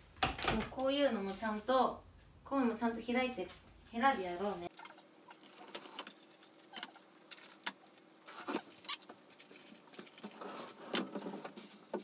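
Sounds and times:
foil crinkling: 5.3 - 12.0.

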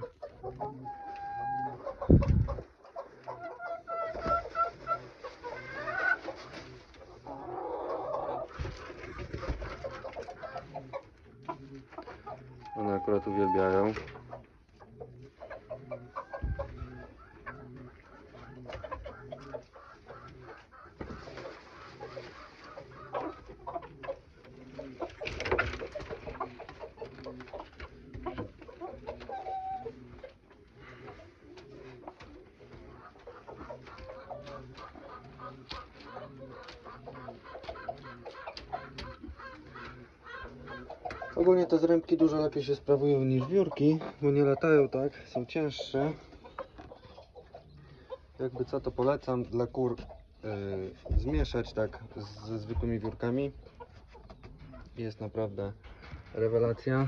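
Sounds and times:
chickens clucking: 0.0 - 57.0
pigeons cooing: 0.0 - 57.0
rustling: 1.8 - 7.4, 8.4 - 15.6, 19.7 - 41.0.

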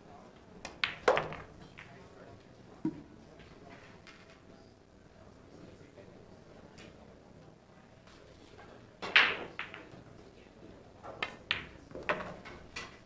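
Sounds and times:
pool balls clicking: 0.6 - 2.1, 9.0 - 10.1, 11.0 - 13.0
cue striking ball: 0.7 - 2.0, 9.0 - 10.0, 11.2 - 12.8.

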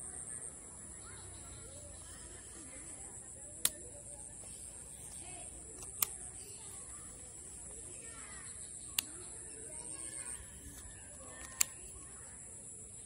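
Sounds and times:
faint bird calls: 0.0 - 13.0
sharp clicks: 3.5 - 4.0, 5.0 - 6.7, 8.7 - 9.4, 10.0 - 12.1.

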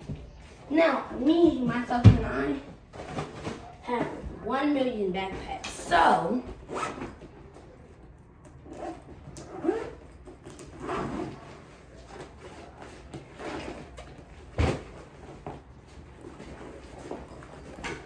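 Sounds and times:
backpacks rustling: 5.5 - 18.0.

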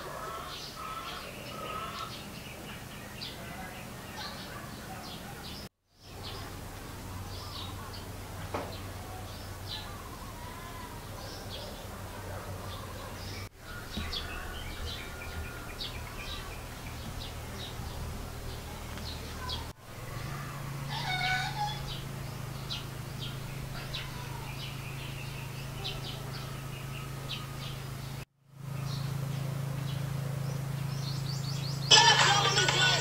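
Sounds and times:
birds chirping: 0.0 - 33.0
steady low hum: 6.0 - 33.0
animal call: 19.4 - 27.7.

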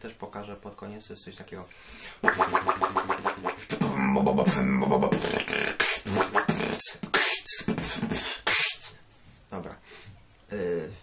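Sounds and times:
beatboxer wobble bass: 2.1 - 9.0.

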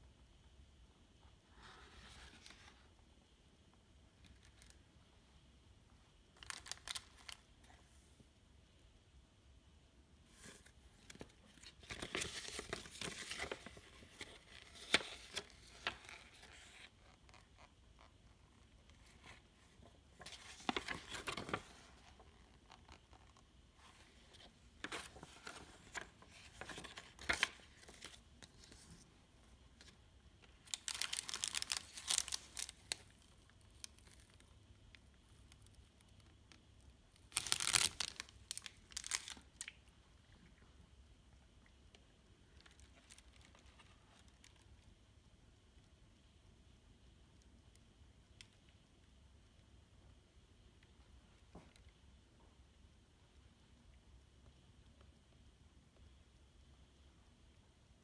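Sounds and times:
paper rustling and crinkling: 6.4 - 7.4, 10.3 - 17.7, 18.9 - 29.1, 30.6 - 34.5, 37.3 - 39.4.

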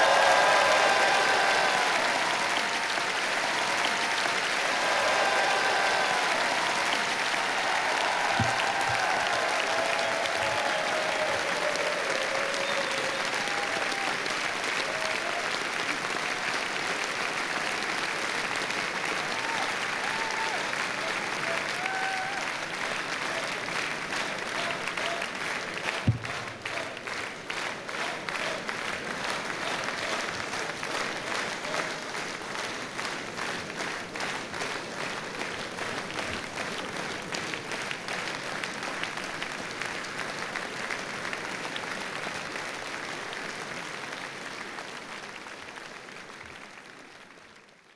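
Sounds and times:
audience applauding: 0.0 - 47.9
thump: 8.4 - 9.0, 26.1 - 26.4.

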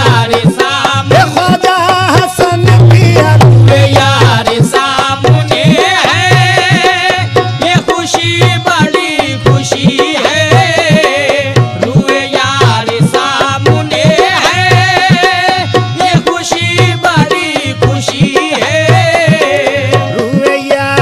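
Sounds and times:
tabla beat: 0.0 - 21.0.

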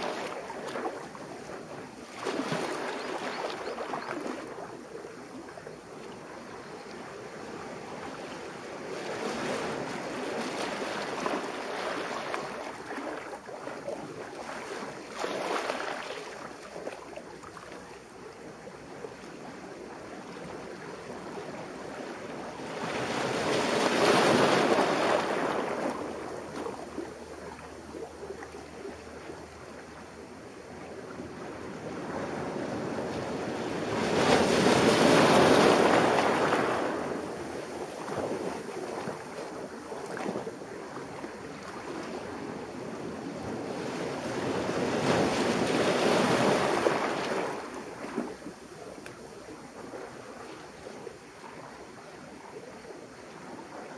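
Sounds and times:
surf washing over boulders: 0.0 - 4.5, 21.7 - 28.1, 31.2 - 51.3.

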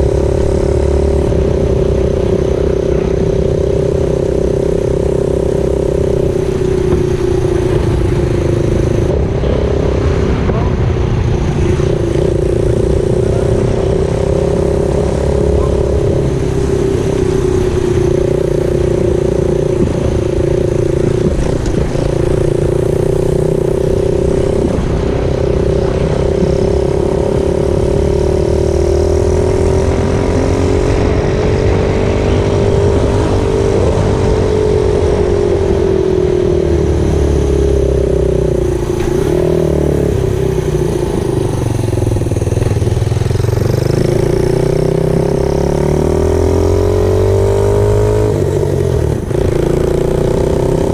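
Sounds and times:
small motorcycle engine running: 0.0 - 50.9.

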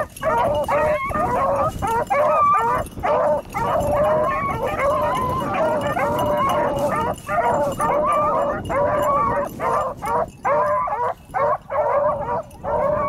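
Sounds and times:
hounds baying: 0.0 - 13.0.

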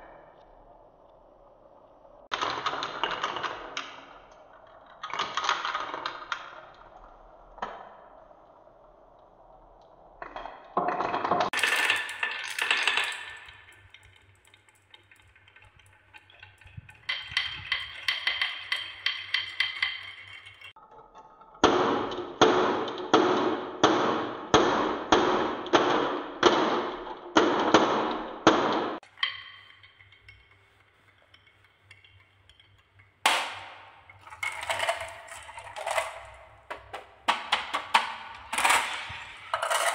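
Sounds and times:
marbles rattling through wooden run: 10.3 - 20.8, 33.2 - 39.9.

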